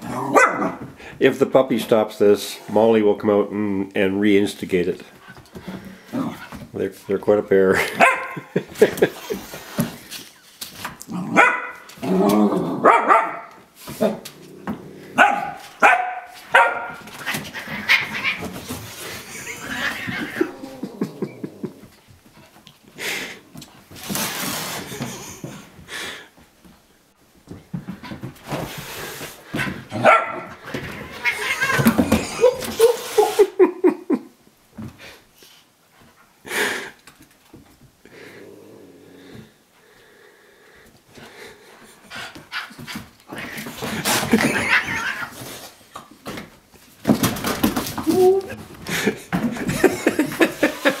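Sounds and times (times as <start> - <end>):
puppy barking and growling: 0.0 - 0.9, 7.9 - 8.5, 11.1 - 14.2, 15.0 - 18.5, 29.9 - 30.6
puppy barking and yipping: 11.4 - 11.8, 12.9 - 13.5, 15.2 - 17.0
cat hissing: 17.2 - 21.4, 31.0 - 33.6.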